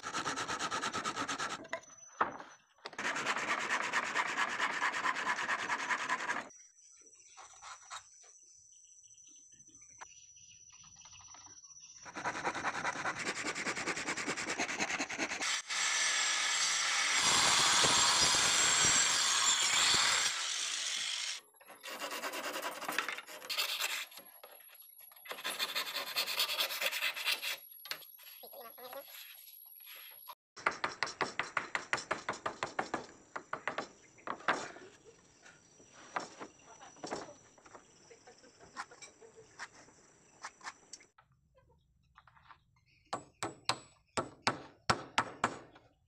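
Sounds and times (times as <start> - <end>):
handsaw cutting wood: 0.0 - 1.6, 3.0 - 6.5, 12.1 - 24.1, 25.3 - 27.6.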